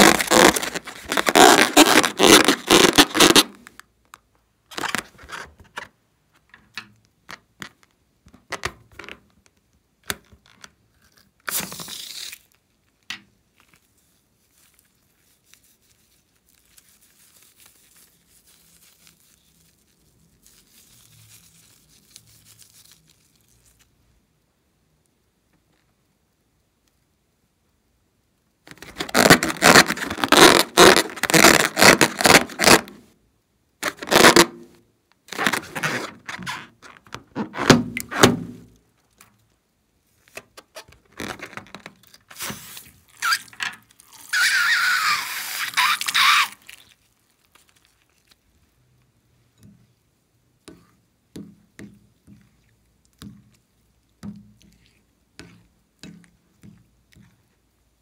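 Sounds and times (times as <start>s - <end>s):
rubber balloon rubbing and clicking: 0.0s - 3.8s, 28.7s - 33.0s, 33.8s - 34.7s, 35.3s - 38.8s, 40.3s - 46.7s.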